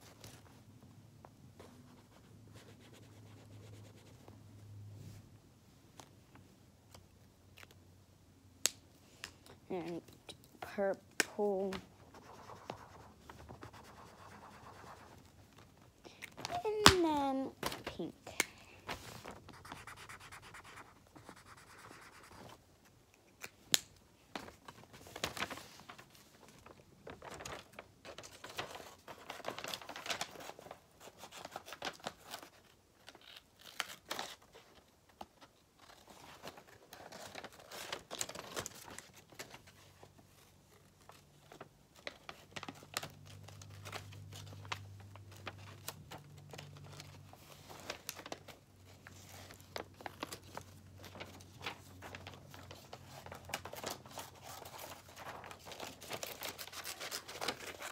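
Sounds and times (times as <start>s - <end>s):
paper rustling and crinkling: 11.4s - 22.6s, 24.3s - 57.9s
marker scratching on paper: 19.5s - 22.4s.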